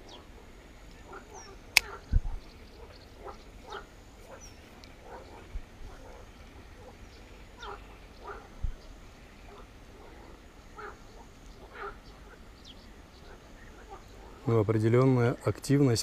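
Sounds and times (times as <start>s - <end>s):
sharp click: 1.7s - 2.0s
short animal calls: 2.8s - 12.5s.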